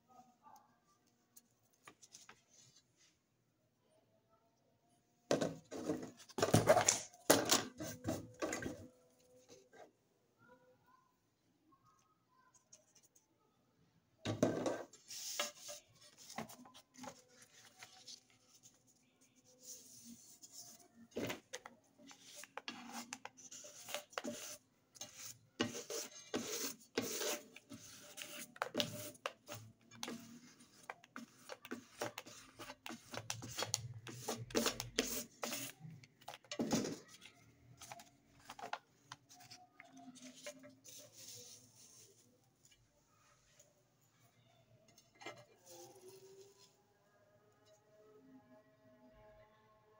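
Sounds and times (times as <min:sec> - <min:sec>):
paper rustling and scraping: 0:14.8 - 0:42.2.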